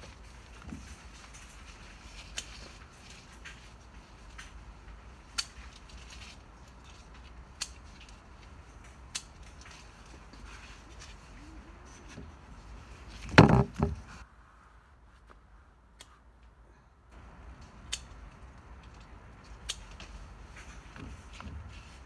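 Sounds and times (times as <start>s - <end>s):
rustling of vines: 0.0s - 16.3s, 17.2s - 22.0s
sharp clicks of stems snapping: 5.3s - 5.8s, 7.5s - 8.0s, 8.8s - 9.6s, 17.5s - 20.1s.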